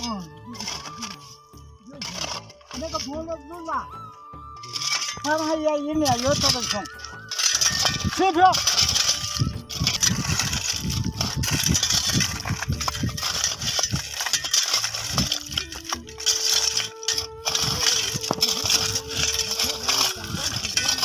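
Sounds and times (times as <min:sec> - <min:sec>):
shovel strikes against stones: 0:00.0 - 0:03.8, 0:04.6 - 0:21.0
shovels scraping into gravel: 0:00.0 - 0:03.9, 0:04.6 - 0:21.0.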